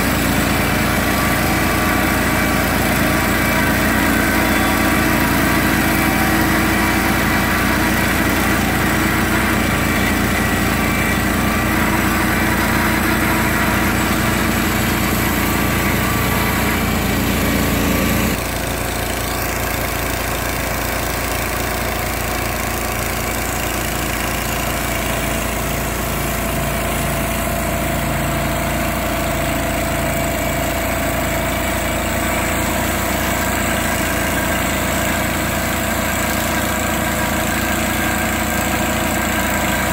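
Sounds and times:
sawmill engine running: 0:00.0 - 0:39.9.

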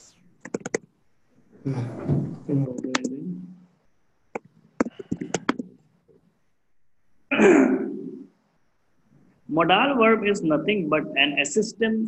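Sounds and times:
computer keyboard typing: 0:00.4 - 0:00.9, 0:04.3 - 0:05.8.

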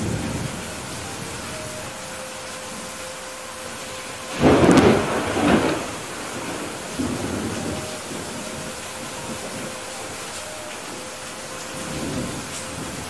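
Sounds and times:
heavy rain: 0:00.0 - 0:13.0
thunder clap and rumble: 0:04.3 - 0:10.1.

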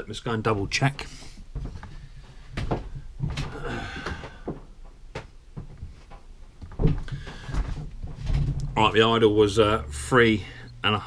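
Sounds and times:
knocks and clicks of handling things: 0:01.5 - 0:08.8.

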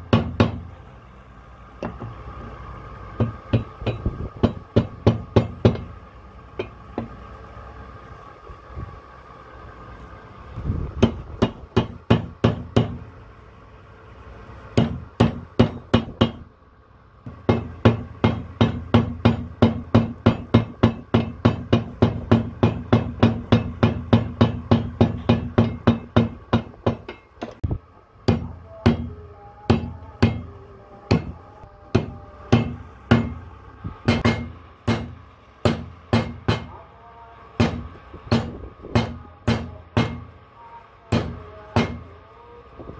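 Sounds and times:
hammer striking steel punch: 0:00.1 - 0:00.7, 0:14.8 - 0:16.4, 0:17.3 - 0:27.6, 0:28.2 - 0:29.1, 0:29.7 - 0:30.5, 0:31.1 - 0:33.4, 0:34.0 - 0:36.8, 0:37.6 - 0:40.3, 0:41.1 - 0:42.2.

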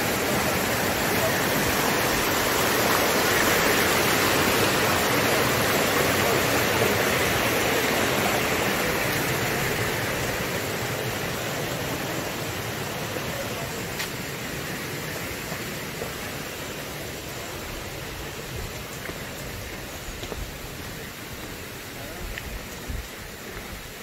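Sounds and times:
stream rushing over stones: 0:00.0 - 0:24.0.

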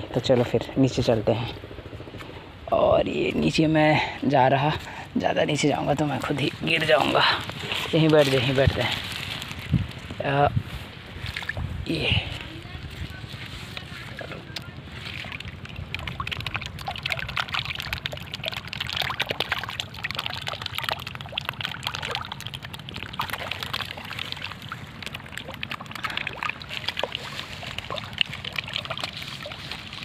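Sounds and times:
fish splashing at water surface: 0:11.1 - 0:12.7, 0:13.7 - 0:30.0.

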